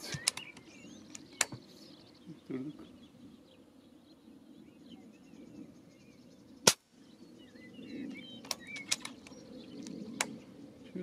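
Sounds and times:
faint bird chirps: 0.0 - 11.0
air rifle shot crack: 6.6 - 6.9.

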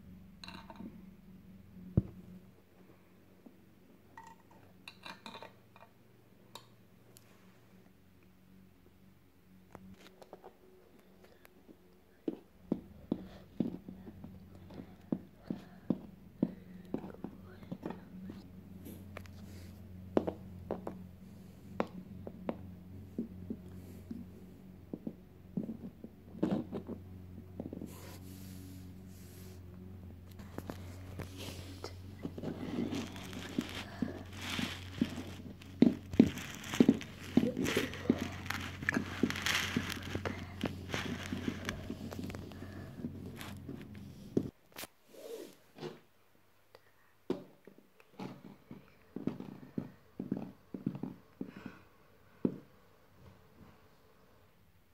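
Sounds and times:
rustling handling noise: 25.0 - 44.9.

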